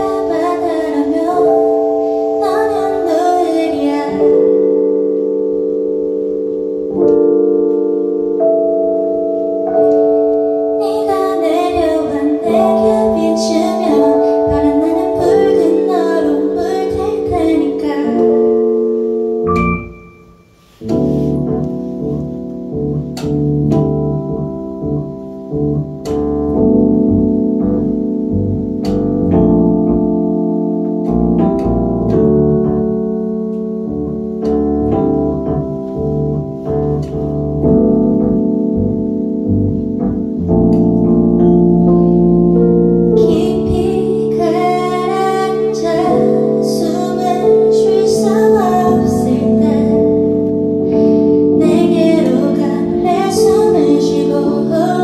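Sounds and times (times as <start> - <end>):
woman singing: 0.0 - 4.7, 10.8 - 18.6, 43.2 - 55.0
keyboard playing chords: 0.0 - 55.0.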